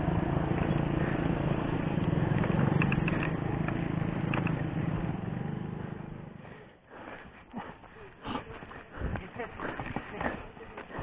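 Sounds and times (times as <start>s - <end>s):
small motorcycle engine running: 0.0s - 6.5s.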